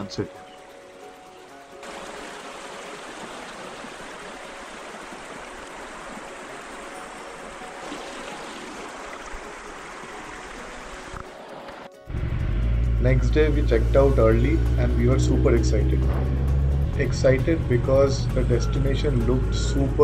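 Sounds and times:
river water rushing over rocks: 0.6s - 12.0s.

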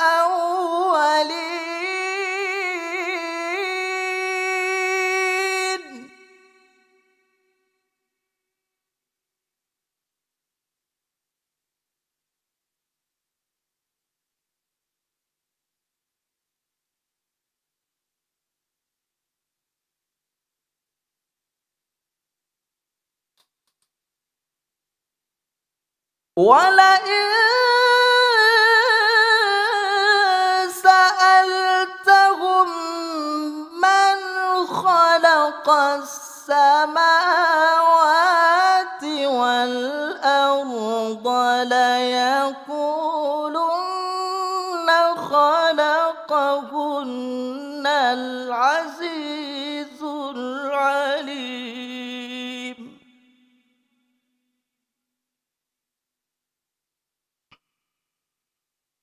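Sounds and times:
man reciting melodically: 0.0s - 6.1s.

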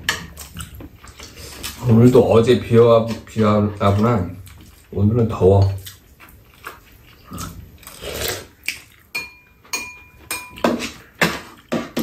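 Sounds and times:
spoons clinking against bowls: 9.1s - 11.0s.

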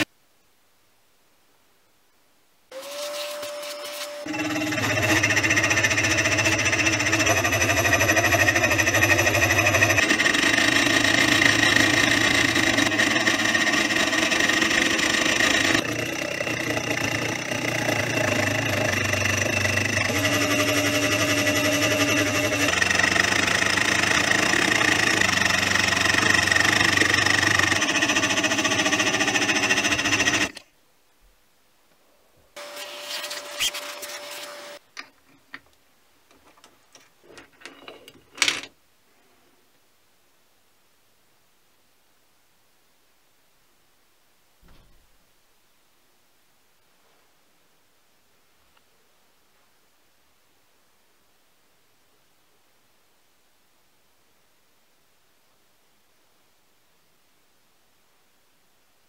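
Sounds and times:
milling machine cutting metal: 2.8s - 30.6s
motor whine: 2.8s - 30.6s.

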